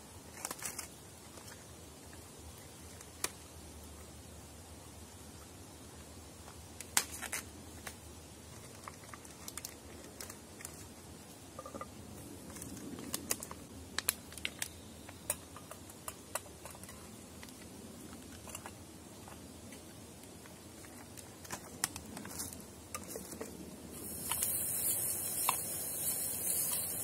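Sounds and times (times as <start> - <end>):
plastic packaging crinkling: 0.3 - 1.6, 6.8 - 11.0.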